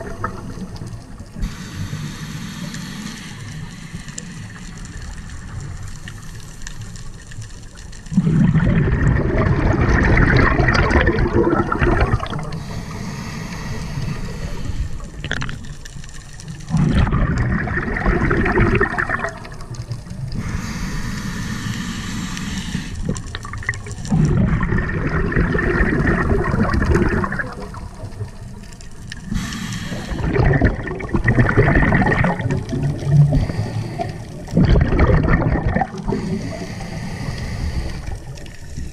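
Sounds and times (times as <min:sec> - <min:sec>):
regulator inhalation hiss: 0:01.4 - 0:05.2, 0:12.5 - 0:15.2, 0:20.3 - 0:23.3, 0:29.2 - 0:30.5, 0:33.2 - 0:34.5, 0:36.0 - 0:38.8.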